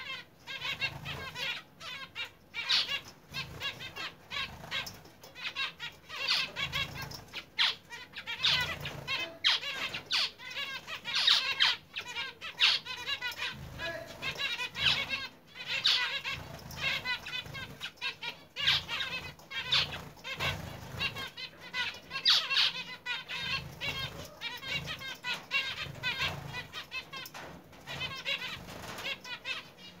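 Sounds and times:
finches chirping: 0:00.0 - 0:30.0
wings fluttering: 0:13.4 - 0:21.4, 0:23.3 - 0:29.6.

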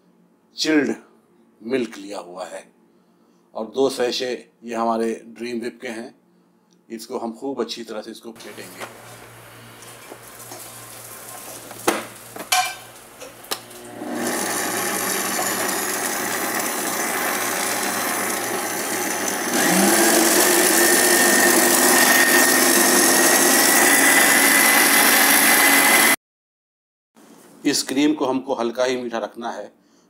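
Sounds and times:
stand mixer motor whining: 0:08.4 - 0:26.2.

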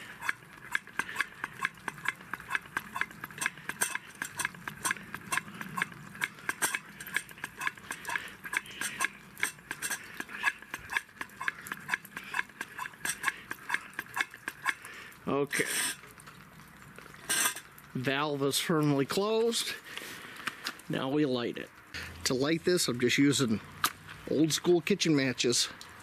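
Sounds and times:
hand air pump clicking: 0:00.0 - 0:14.8.

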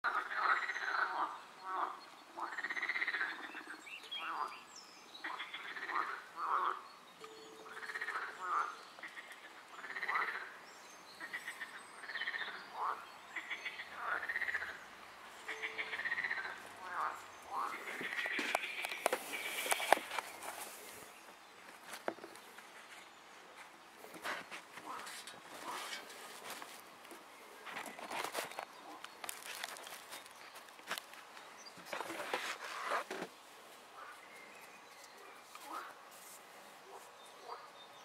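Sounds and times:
frogs croaking: 0:00.0 - 0:04.6, 0:05.2 - 0:10.6, 0:11.2 - 0:20.2.

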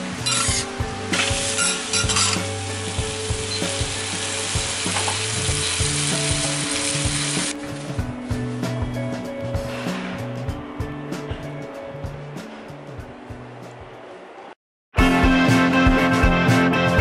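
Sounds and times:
food sizzling on a griddle: 0:00.0 - 0:07.6.

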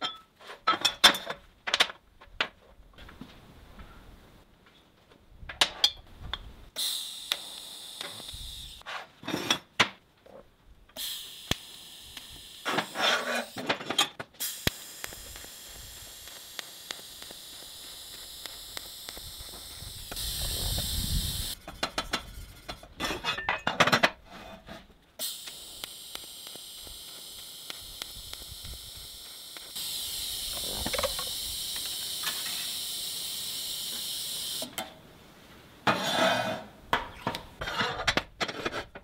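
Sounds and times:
welding arc hissing: 0:06.7 - 0:08.8, 0:11.0 - 0:13.8, 0:14.4 - 0:22.9, 0:25.2 - 0:34.8.

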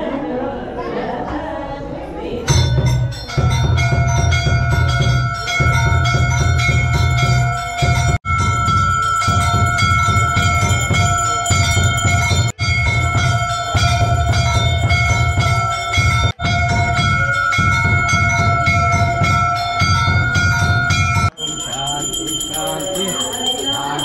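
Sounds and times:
bell clanging rapidly: 0:02.5 - 0:24.0.

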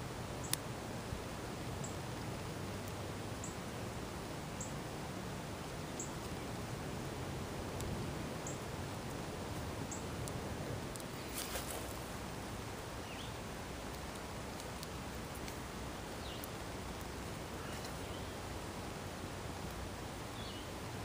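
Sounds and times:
steady hiss: 0:00.0 - 0:21.0
clicks and rustles of handling: 0:10.9 - 0:12.1.

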